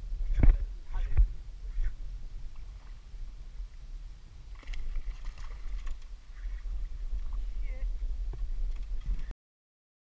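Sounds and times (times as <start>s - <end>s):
steady low rumble: 0.0s - 9.3s
fish splashing and thrashing: 4.5s - 7.5s.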